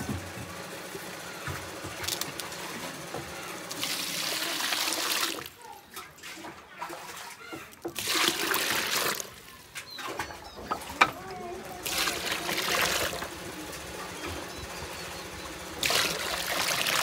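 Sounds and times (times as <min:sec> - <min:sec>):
water pouring and splashing: 0:01.9 - 0:02.6, 0:03.7 - 0:10.3, 0:11.8 - 0:13.3, 0:15.8 - 0:17.0.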